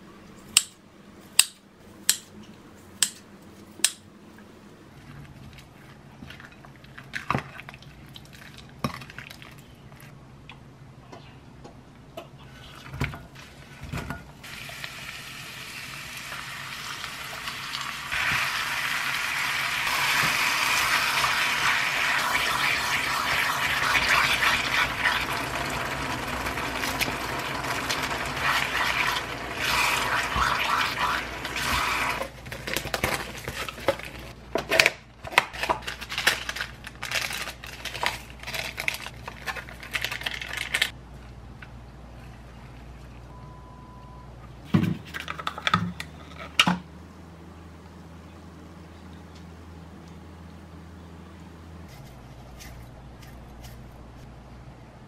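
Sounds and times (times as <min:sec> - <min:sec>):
meat sizzling in a frying pan: 0:14.5 - 0:32.2.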